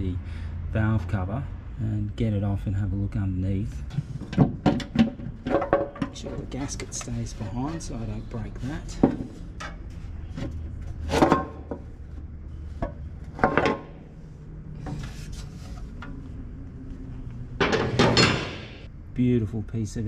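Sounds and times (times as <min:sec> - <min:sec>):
metal knocking and scraping: 0:03.9 - 0:16.6, 0:17.5 - 0:18.9.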